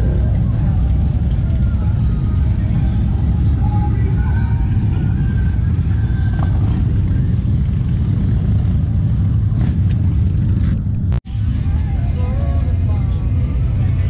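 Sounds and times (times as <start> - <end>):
motorcycle engines rumbling: 0.0 - 14.0.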